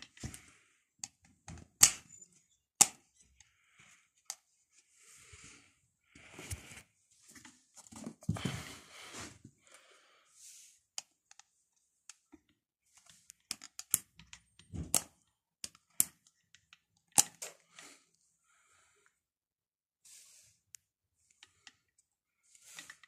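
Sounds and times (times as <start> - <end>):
plastic clicks and knocks: 13.4 - 17.6.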